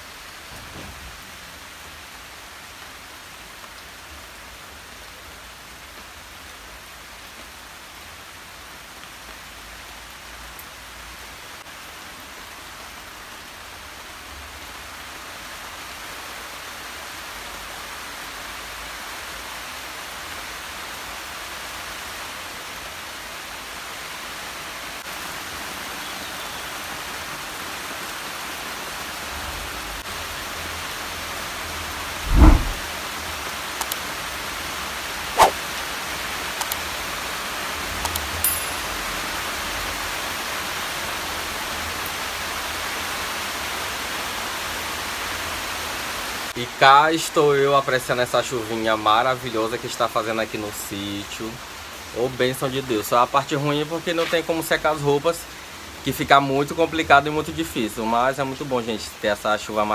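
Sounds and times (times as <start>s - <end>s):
steady rainfall: 0.0s - 59.9s.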